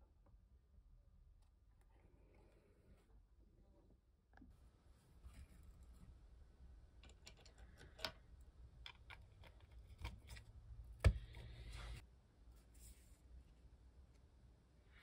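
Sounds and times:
small parts clicking and tapping: 7.0s - 11.5s.

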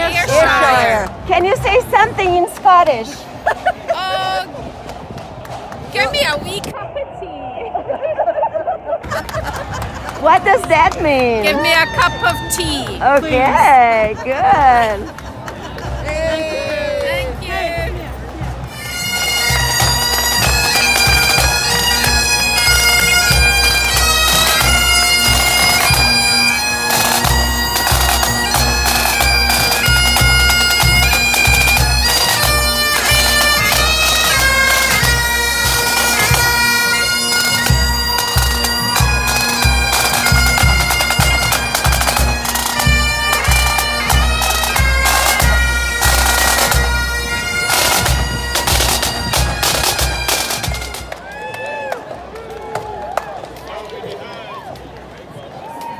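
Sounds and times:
bagpipes playing a march: 0.0s - 3.2s, 10.1s - 15.1s, 15.8s - 51.2s.

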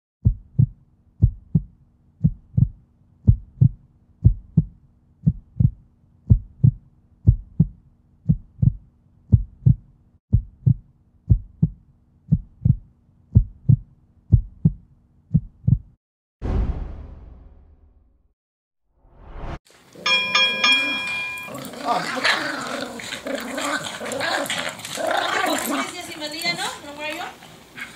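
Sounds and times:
heartbeat double thump: 0.2s - 17.5s.

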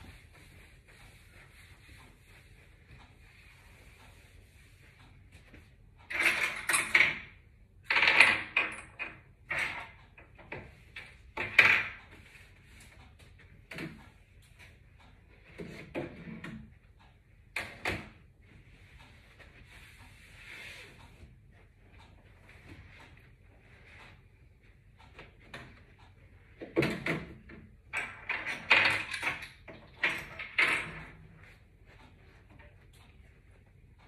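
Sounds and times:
cloth rubbing and wiping: 0.0s - 5.8s, 18.4s - 24.5s.

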